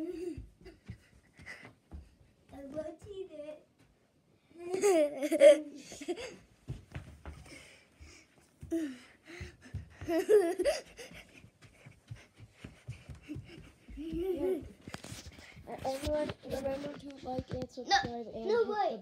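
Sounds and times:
child giggling: 4.6 - 6.4, 10.0 - 11.3, 13.3 - 14.9
soft low thumps: 6.6 - 18.4.

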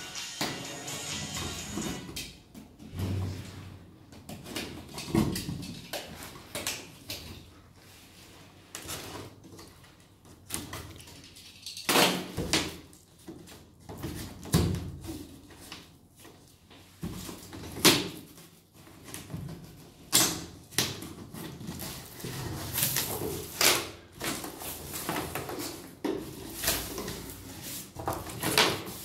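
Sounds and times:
cardboard rustling and scraping: 21.0 - 29.0.

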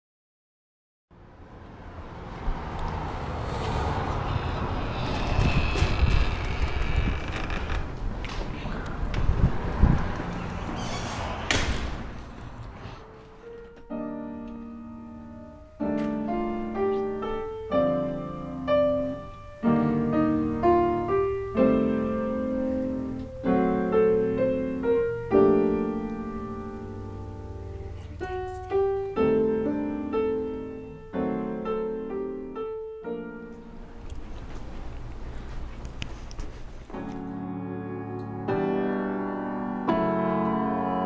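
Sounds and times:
slow piano chords: 12.2 - 35.7, 36.5 - 41.0.

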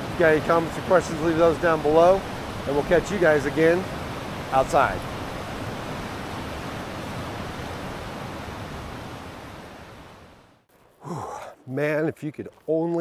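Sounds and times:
river rapids roaring: 0.0 - 10.2.

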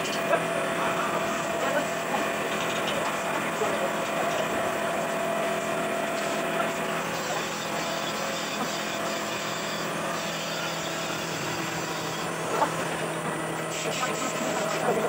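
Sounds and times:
workshop machinery humming: 0.0 - 15.0.

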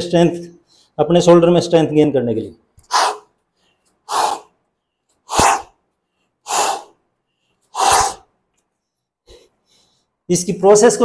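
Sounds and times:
man exhaling sharply: 4.1 - 4.5, 5.3 - 7.0, 7.7 - 8.3.

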